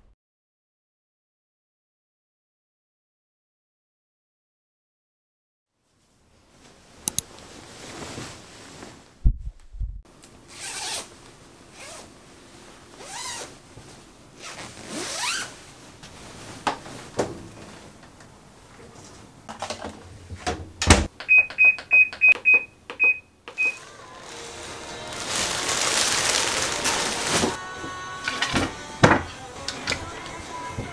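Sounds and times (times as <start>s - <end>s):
short high electronic beeps: 21.3s - 23.8s
scraping and sliding objects: 23.8s - 27.6s.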